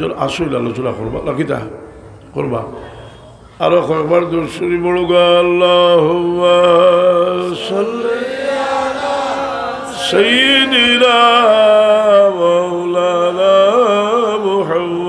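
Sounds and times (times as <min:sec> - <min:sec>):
man chanting melodically: 0:03.5 - 0:08.6, 0:09.9 - 0:15.0.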